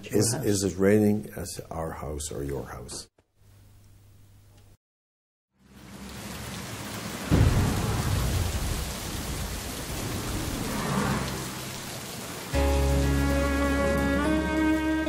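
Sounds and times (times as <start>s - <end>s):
rain falling: 5.6s - 15.0s
thunder rumble: 5.8s - 12.6s
thunderclap: 7.0s - 12.5s.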